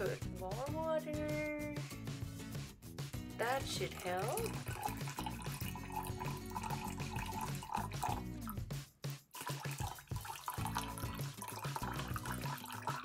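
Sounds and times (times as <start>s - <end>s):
background music: 0.0s - 13.0s
water pouring and splashing on ice: 3.6s - 8.6s, 9.4s - 13.0s.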